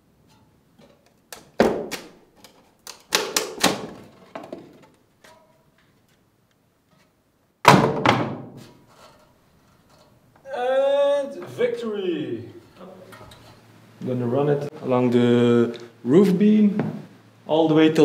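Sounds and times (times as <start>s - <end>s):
objects knocking and thudding: 0.2s - 6.0s, 6.9s - 10.2s.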